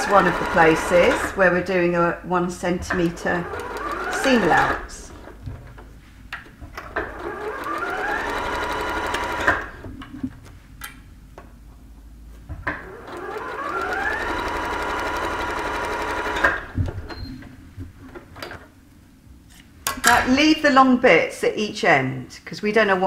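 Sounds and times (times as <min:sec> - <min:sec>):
sewing machine stitching: 0:00.0 - 0:01.5, 0:02.9 - 0:05.4, 0:06.8 - 0:09.8, 0:12.7 - 0:16.8.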